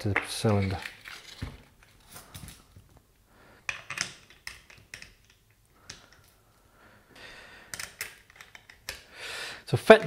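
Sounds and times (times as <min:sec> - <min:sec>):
plastic and metal parts clicking: 0:07.7 - 0:09.0.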